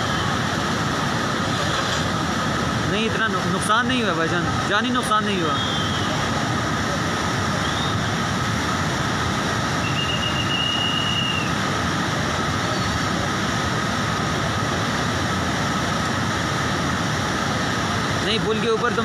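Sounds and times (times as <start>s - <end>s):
river water roaring: 0.0s - 19.0s.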